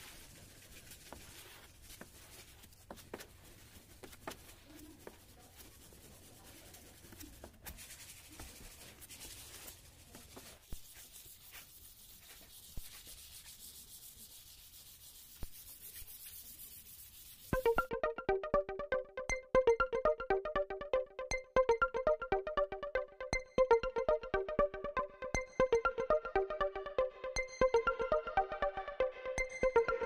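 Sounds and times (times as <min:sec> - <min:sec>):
sandpaper on metal: 0:04.6 - 0:17.7.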